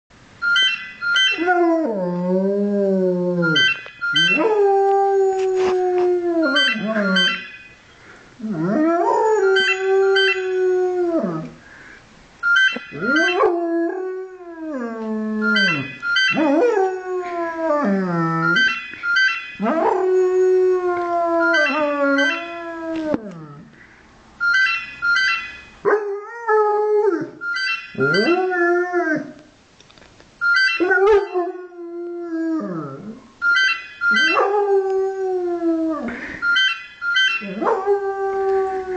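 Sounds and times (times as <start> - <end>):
phone ringtone beeps: 0.4 - 1.5, 3.4 - 4.6, 6.4 - 7.8, 9.4 - 10.6, 12.4 - 13.5, 15.4 - 16.6, 18.3 - 19.7, 21.4 - 22.6, 24.4 - 25.8, 27.4 - 28.4, 30.4 - 31.4, 33.4 - 34.4, 36.2 - 37.6.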